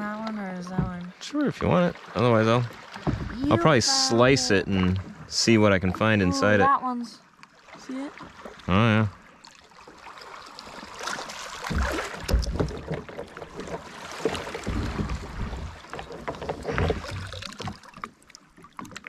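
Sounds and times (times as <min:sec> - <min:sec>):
water splashing around a kayak: 0:00.0 - 0:19.0
low thumps: 0:00.6 - 0:06.4, 0:14.3 - 0:17.3.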